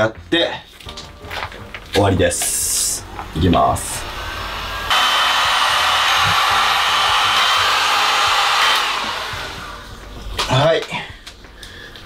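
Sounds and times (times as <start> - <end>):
heat gun blowing hot air: 3.8 - 10.0.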